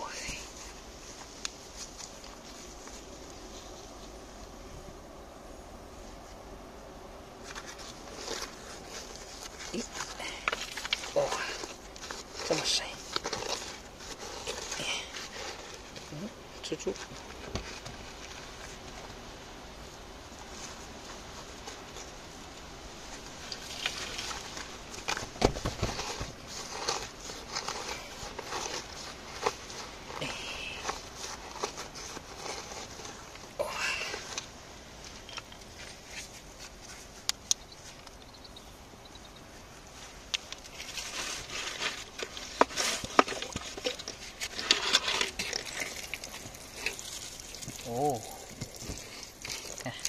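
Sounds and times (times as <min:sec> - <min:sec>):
hand scraping soil and gravel: 0:00.0 - 0:04.4, 0:07.4 - 0:38.4, 0:39.5 - 0:50.0
grit and stones pattering: 0:07.4 - 0:19.2, 0:20.2 - 0:38.3, 0:39.9 - 0:50.0.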